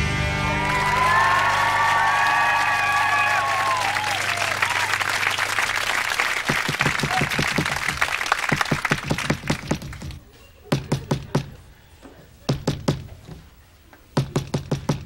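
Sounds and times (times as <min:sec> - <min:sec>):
audience applause: 0:00.4 - 0:10.1
knocking on a door: 0:06.5 - 0:08.0, 0:08.6 - 0:11.6, 0:12.5 - 0:13.1, 0:14.2 - 0:15.0.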